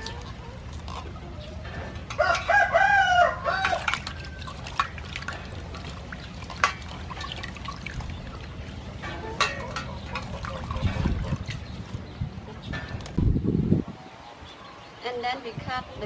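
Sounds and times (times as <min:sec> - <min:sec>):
rooster crowing: 0:02.2 - 0:03.9
water splashing in a metal bowl: 0:03.3 - 0:12.0.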